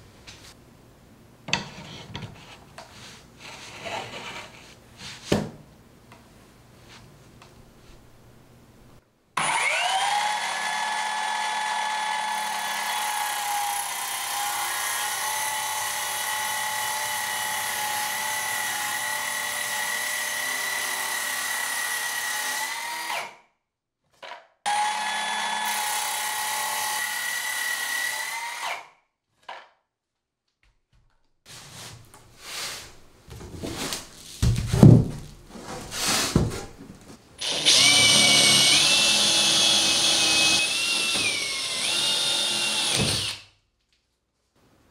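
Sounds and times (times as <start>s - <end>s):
irregular knocks and clatters: 34.4s - 35.8s
circular saw cutting plywood: 37.4s - 43.4s.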